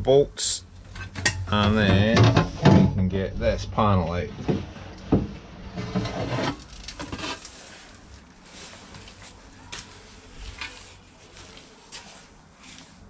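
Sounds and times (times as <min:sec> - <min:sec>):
metal panel scraping: 0:00.9 - 0:04.8, 0:05.4 - 0:07.8.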